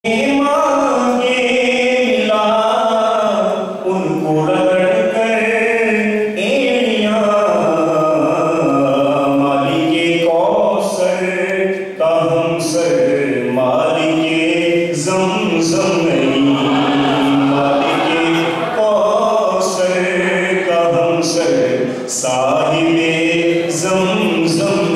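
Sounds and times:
man chanting: 0:00.0 - 0:24.9
breaths: 0:21.8 - 0:22.1.

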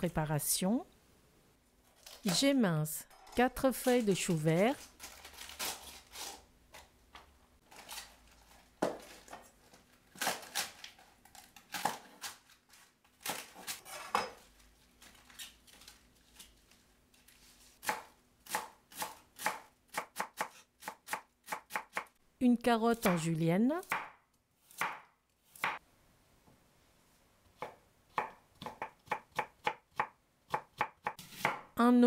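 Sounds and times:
cleaver chopping cabbage on wood: 0:17.8 - 0:22.1, 0:23.9 - 0:25.8, 0:27.6 - 0:31.7.

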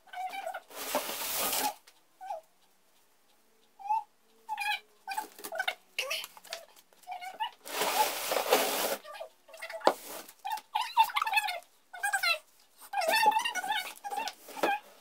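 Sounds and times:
artificial tree branches rustling: 0:00.7 - 0:01.8, 0:07.6 - 0:09.0.

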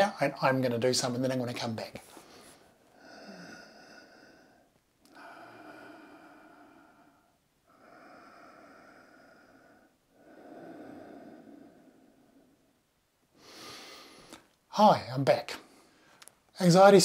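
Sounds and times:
person breathing deeply: 0:02.1 - 0:14.5.

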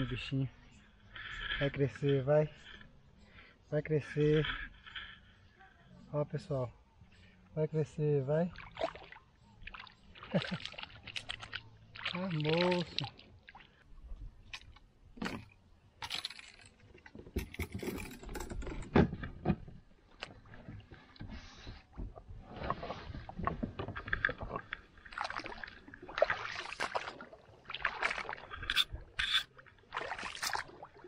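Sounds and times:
knocks and scrapes in plastic kayak: 0:17.0 - 0:25.3.

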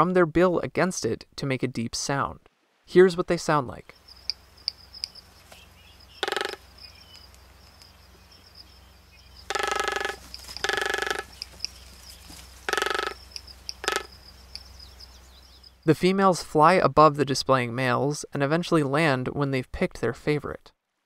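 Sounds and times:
bird drumming calls: 0:03.9 - 0:15.9
high insect-like whine: 0:03.9 - 0:15.9.

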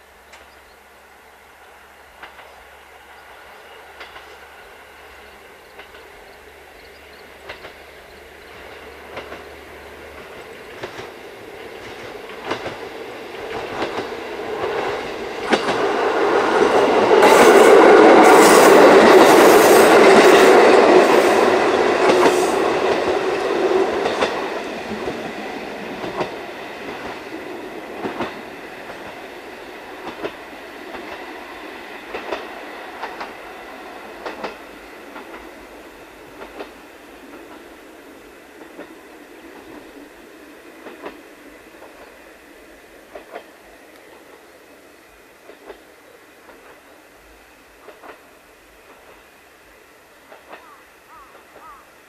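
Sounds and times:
diesel railcar passing: 0:00.0 - 0:52.0
wheels clicking over rail joints: 0:02.2 - 0:02.6, 0:04.0 - 0:04.6, 0:05.6 - 0:06.2, 0:06.8 - 0:37.8, 0:38.6 - 0:40.2, 0:40.8 - 0:42.2, 0:43.0 - 0:44.5, 0:47.8 - 0:49.3, 0:50.3 - 0:51.8.

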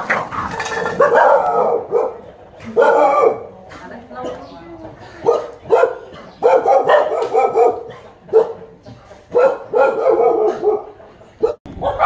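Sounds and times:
dog barking: 0:01.0 - 0:03.5, 0:05.2 - 0:08.7, 0:09.3 - 0:12.0.

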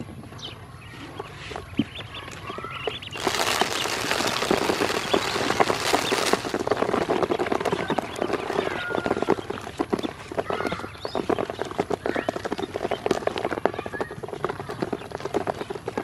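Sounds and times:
ducklings pecking on plastic: 0:00.2 - 0:16.0
feed poured into plastic basin: 0:03.2 - 0:06.9.

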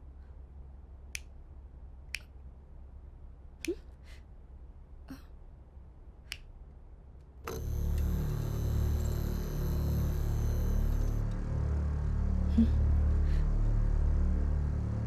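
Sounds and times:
low steady hum: 0:00.0 - 0:15.0
eerie music: 0:07.5 - 0:15.0.

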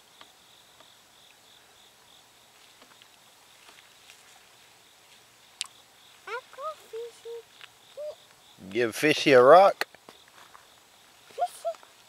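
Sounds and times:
faint insects chirping: 0:00.0 - 0:12.0
soft ticks: 0:05.6 - 0:05.8.

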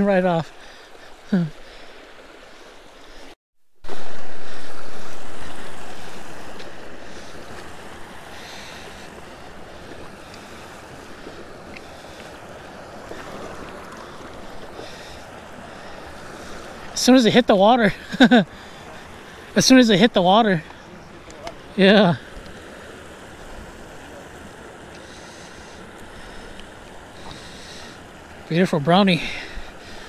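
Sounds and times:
creek water rushing: 0:00.0 - 0:30.0
wind on microphone: 0:03.8 - 0:11.8.

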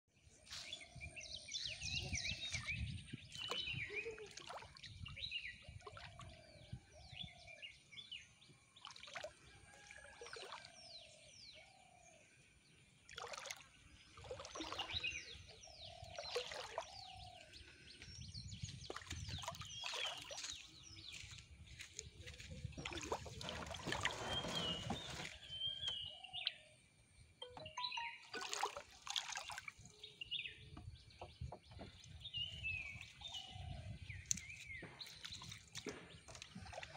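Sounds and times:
birds chirping: 0:00.3 - 0:09.2, 0:13.8 - 0:36.9
water splashes: 0:02.4 - 0:06.5, 0:08.7 - 0:11.2, 0:13.0 - 0:17.4, 0:18.7 - 0:21.5, 0:22.7 - 0:26.0, 0:27.9 - 0:30.1, 0:31.2 - 0:36.9.

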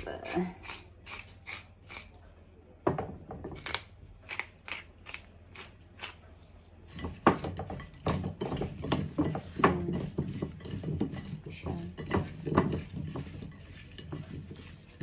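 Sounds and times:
vegetables rattling in baking dish: 0:06.9 - 0:15.0.

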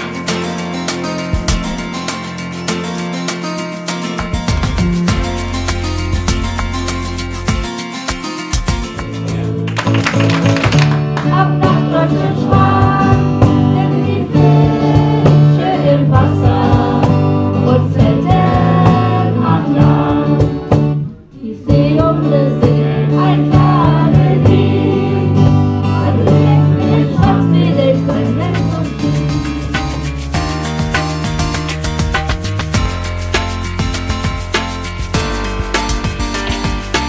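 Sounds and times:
band playing: 0:00.0 - 0:13.8, 0:28.2 - 0:37.0
voices singing together: 0:11.2 - 0:30.0.

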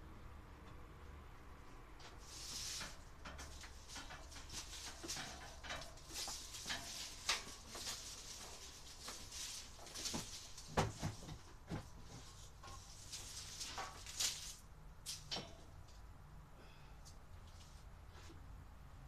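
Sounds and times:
objects being handled: 0:02.0 - 0:16.0.

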